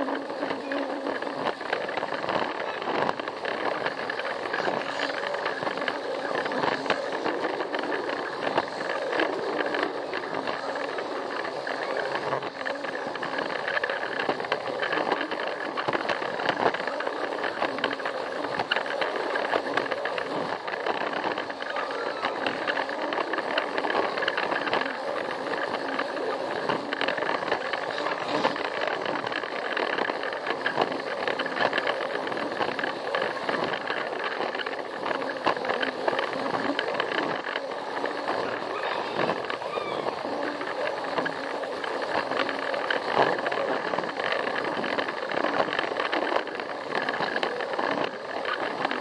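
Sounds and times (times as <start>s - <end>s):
toy train clicks: 0.0s - 49.0s
toy train motor whirring: 0.0s - 49.0s.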